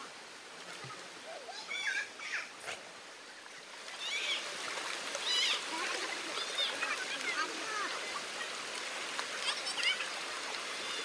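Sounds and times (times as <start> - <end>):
stream rushing: 0.0 - 11.0
children shrieking and squealing: 1.4 - 2.5.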